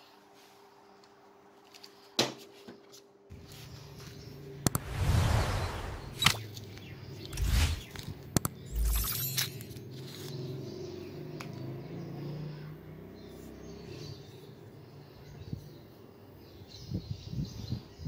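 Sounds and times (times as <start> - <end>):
whooshes: 4.7 - 6.4, 7.2 - 8.0.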